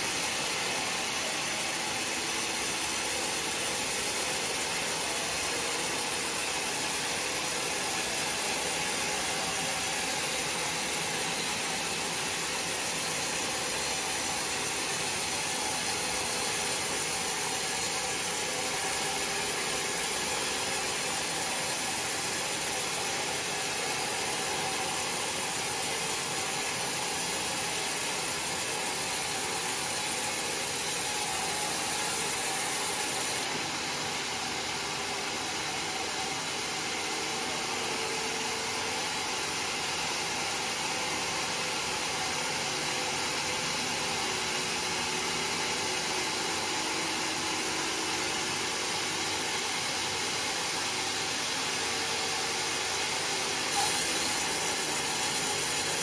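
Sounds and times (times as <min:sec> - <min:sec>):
band saw cutting through log: 0:53.6 - 0:56.0.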